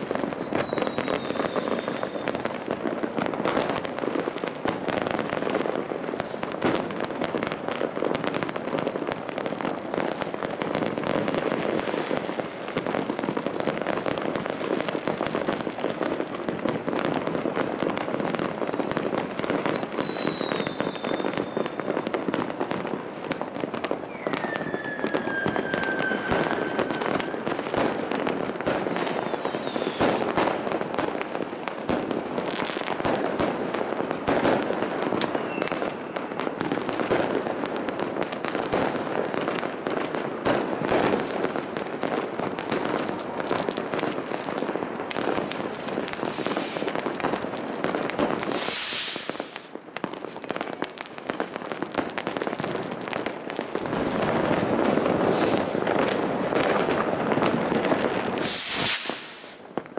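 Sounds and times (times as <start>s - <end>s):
fireworks whistling: 0.0s - 2.6s, 6.0s - 6.9s, 18.7s - 22.4s, 23.9s - 30.7s, 34.3s - 36.7s, 42.1s - 59.9s
crackle of firecracker bangs: 0.0s - 59.9s.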